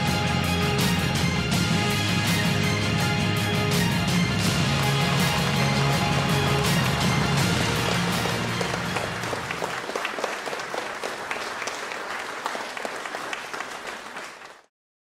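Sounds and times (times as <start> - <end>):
closing music: 0.0 - 10.4
audience applauding: 4.4 - 14.7.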